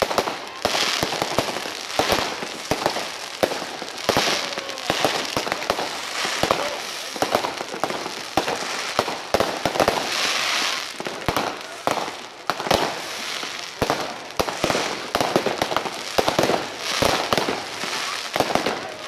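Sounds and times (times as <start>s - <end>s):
crackling hiss of fireworks: 0.0s - 19.0s.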